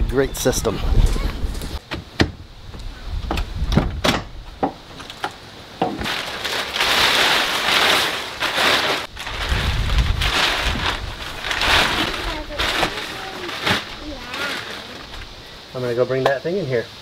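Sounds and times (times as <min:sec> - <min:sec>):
plastic sheeting crinkling: 0:06.0 - 0:15.4.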